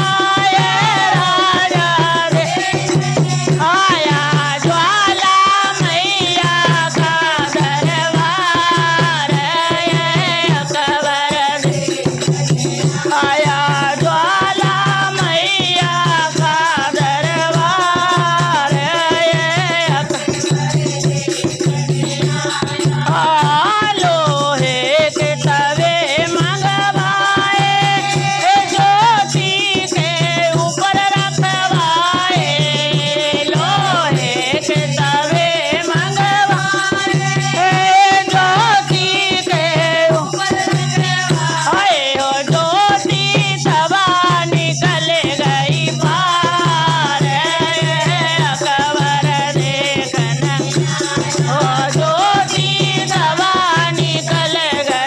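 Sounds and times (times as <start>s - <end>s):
hand drum beat: 0.0s - 55.0s
women singing in chorus: 0.0s - 55.0s.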